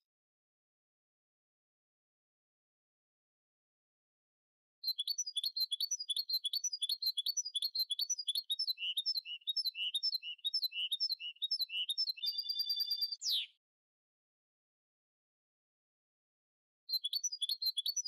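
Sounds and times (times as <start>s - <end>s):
songbird singing: 4.8s - 13.6s, 16.9s - 18.0s.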